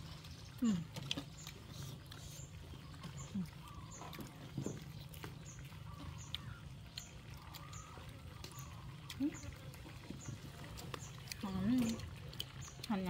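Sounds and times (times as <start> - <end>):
monkeys chewing and smacking: 0.0 - 13.0
monkey low grunts: 0.6 - 2.5.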